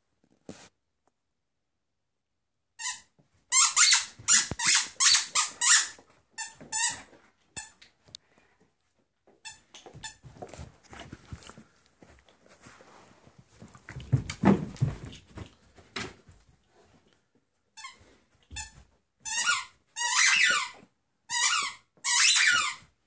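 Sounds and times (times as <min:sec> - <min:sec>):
soft scuffling: 0:00.2 - 0:00.8, 0:09.3 - 0:19.4
squeaky toy squeaking: 0:02.8 - 0:07.8, 0:18.6 - 0:22.9.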